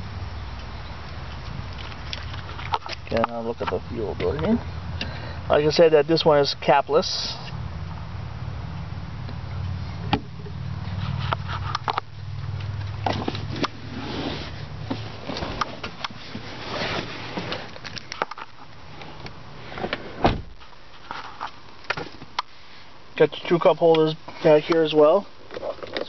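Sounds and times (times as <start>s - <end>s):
car door shutting: 10.1s - 10.3s, 19.7s - 20.6s.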